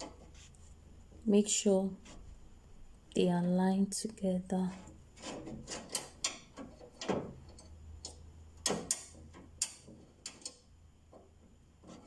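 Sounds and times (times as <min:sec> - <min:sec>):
metal clicks and taps: 0:05.7 - 0:10.6.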